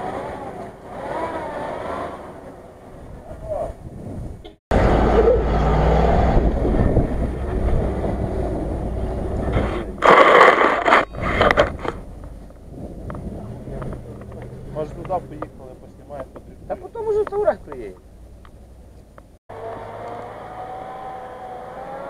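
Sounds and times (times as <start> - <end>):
car engine running under load: 10.8 - 22.0.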